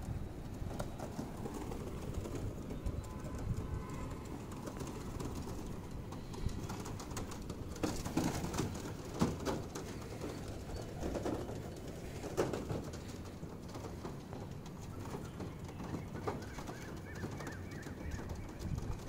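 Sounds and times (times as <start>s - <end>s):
pigeon wingbeats: 0.0s - 19.0s
pigeons cooing: 14.4s - 19.0s.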